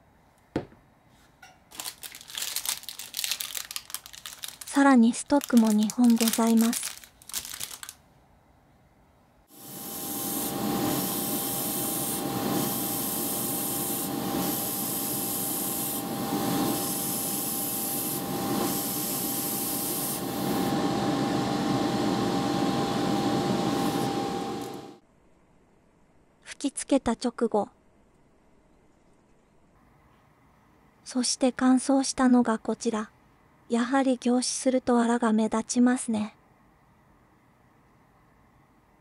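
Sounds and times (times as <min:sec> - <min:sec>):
airbrush spraying hiss: 0:09.5 - 0:20.8.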